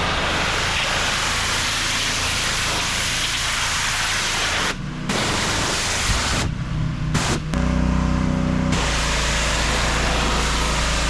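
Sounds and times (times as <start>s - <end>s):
pressure washer spraying water: 0.0s - 11.0s
low hum: 4.8s - 11.0s.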